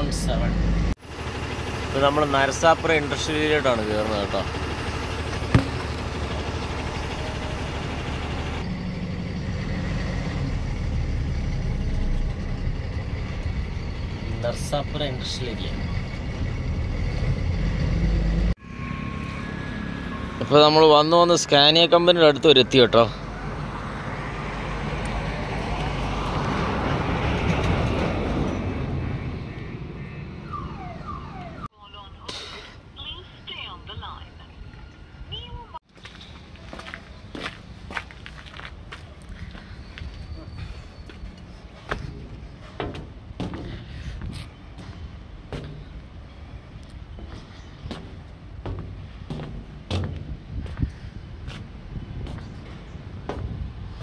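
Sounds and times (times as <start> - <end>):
truck diesel engine drone: 0.0 - 31.7, 38.9 - 54.0
road noise: 0.0 - 54.0
short falling alarm tones: 30.3 - 31.8.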